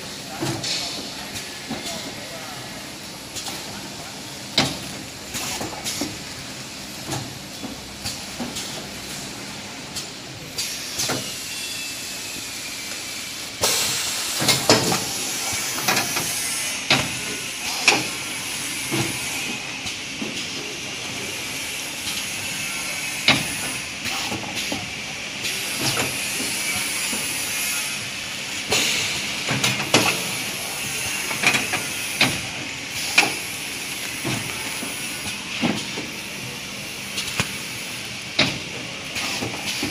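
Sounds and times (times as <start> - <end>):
steady machine hiss: 8.1 - 39.9.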